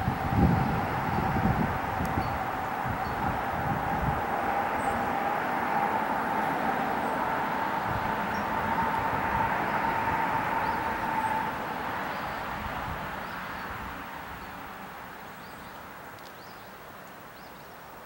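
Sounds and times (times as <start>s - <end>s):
vehicle passing: 0.0s - 14.4s.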